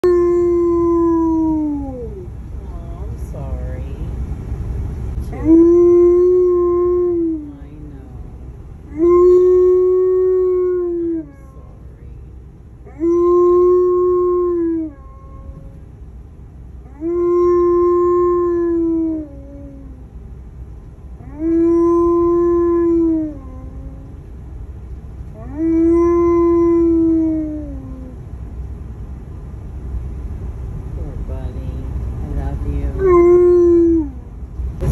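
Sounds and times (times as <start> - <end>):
dog howling: 0.0 - 2.3, 5.3 - 7.5, 8.9 - 11.8, 12.9 - 15.7, 16.8 - 20.0, 21.2 - 24.2, 25.3 - 28.2, 33.0 - 34.3
vehicle road rumble: 0.0 - 34.9.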